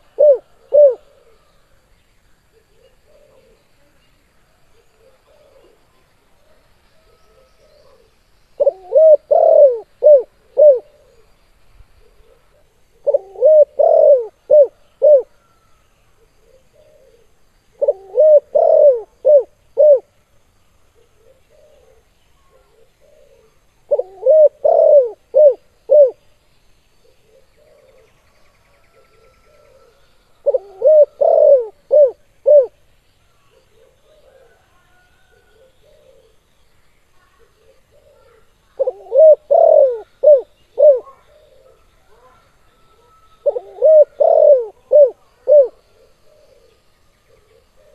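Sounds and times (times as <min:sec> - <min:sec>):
faint cooing: 0:00.0 - 0:01.6, 0:02.6 - 0:03.9, 0:07.0 - 0:11.2, 0:12.0 - 0:20.1, 0:21.0 - 0:26.2, 0:28.8 - 0:32.8, 0:33.4 - 0:36.4, 0:37.3 - 0:47.9
dove cooing song: 0:00.0 - 0:01.8, 0:02.4 - 0:03.9, 0:04.6 - 0:20.2, 0:20.9 - 0:26.3, 0:27.0 - 0:36.5, 0:37.2 - 0:47.9.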